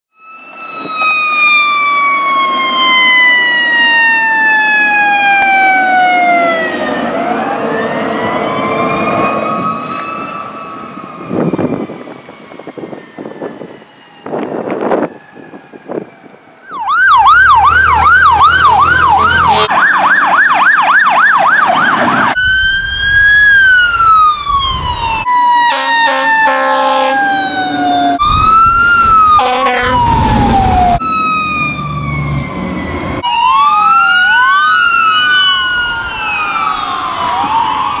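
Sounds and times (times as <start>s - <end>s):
emergency sirens yelping and wailing: 0.1s - 38.0s
steady horn tones: 18.6s - 19.8s, 25.6s - 27.7s, 29.3s - 30.2s.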